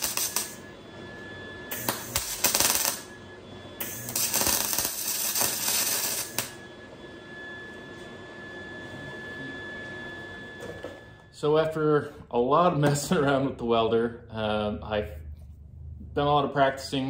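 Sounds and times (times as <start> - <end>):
welding arc crackling: 0.0 - 0.6, 1.7 - 3.2, 3.8 - 6.6.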